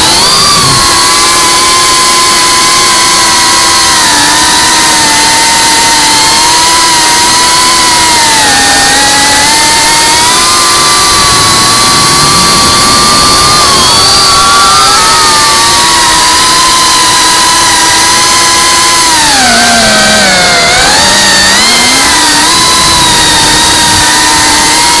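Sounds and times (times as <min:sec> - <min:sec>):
drone motors whining: 0:00.0 - 0:25.0.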